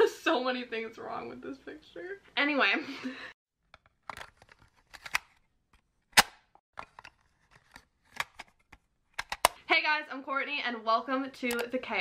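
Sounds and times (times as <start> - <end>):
sharp clicks and pops: 3.6 - 9.6, 11.4 - 11.8.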